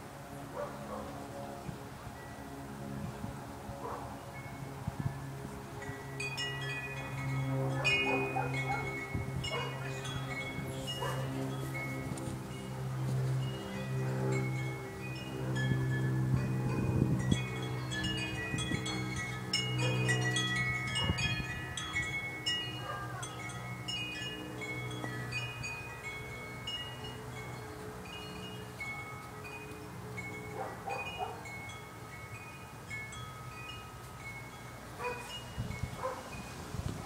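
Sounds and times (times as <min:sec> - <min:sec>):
low steady drone: 0:00.0 - 0:37.0
chimes ringing: 0:05.8 - 0:36.6.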